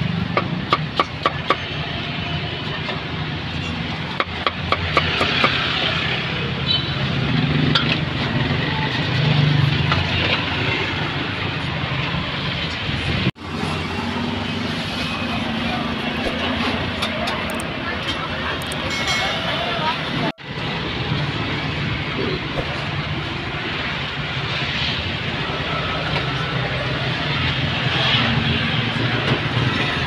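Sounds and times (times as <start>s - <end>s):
steady traffic noise: 0.0s - 30.0s
faint voices: 15.0s - 20.6s.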